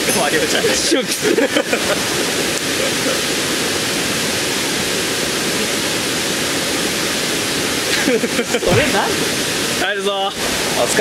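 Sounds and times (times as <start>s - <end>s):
running water rushing: 0.0s - 11.0s.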